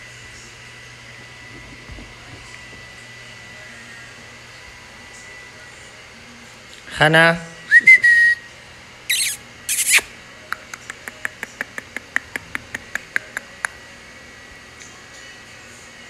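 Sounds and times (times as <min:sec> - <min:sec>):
short whistle-like tone: 0:07.7 - 0:08.5
sharp high squeaks: 0:09.1 - 0:10.1.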